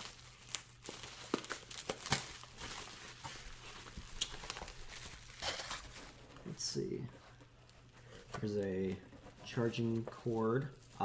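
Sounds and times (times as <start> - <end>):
bubble wrap being torn and crinkling: 0.0 - 6.2.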